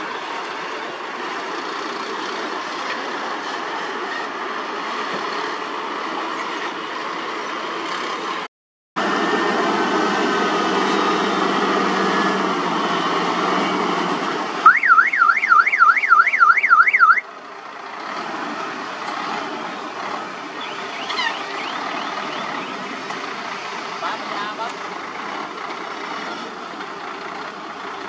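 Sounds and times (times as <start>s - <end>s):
diesel truck engine running: 0.0s - 28.0s
warbling electronic alarm: 14.7s - 17.2s, 20.6s - 22.8s.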